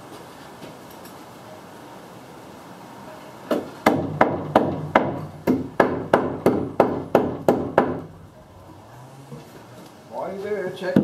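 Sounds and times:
hammer striking wood: 3.5 - 8.1.

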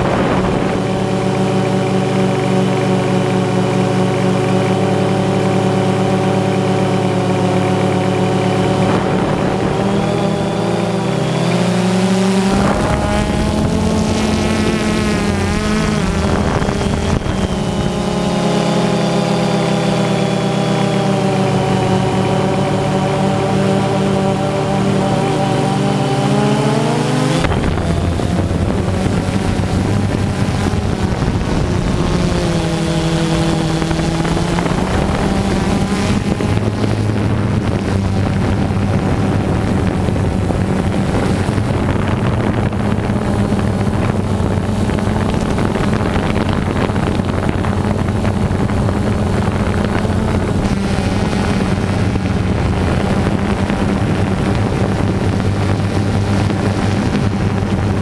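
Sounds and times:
drone motor hum: 0.0 - 58.0
rushing air: 8.5 - 18.4.

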